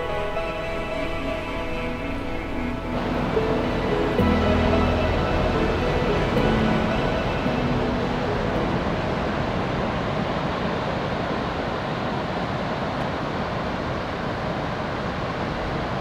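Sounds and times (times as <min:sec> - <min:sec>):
ocean surf washing on beach: 0:00.0 - 0:16.0.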